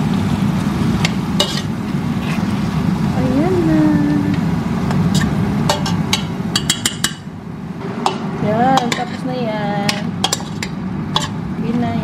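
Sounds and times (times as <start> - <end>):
metal spoon clinking and scraping pot: 1.4 - 2.5, 5.1 - 7.2, 8.0 - 11.4.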